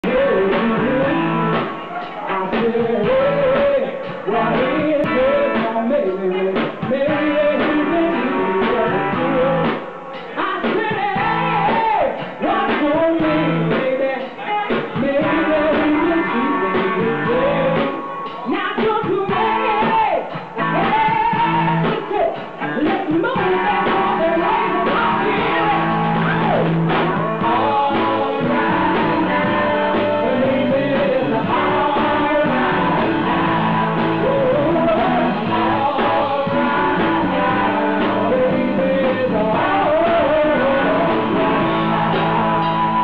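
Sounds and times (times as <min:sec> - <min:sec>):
woman singing into a microphone: 0:00.0 - 0:26.7, 0:27.4 - 0:42.3
drums: 0:00.0 - 0:43.0
electric guitars: 0:00.0 - 0:43.0.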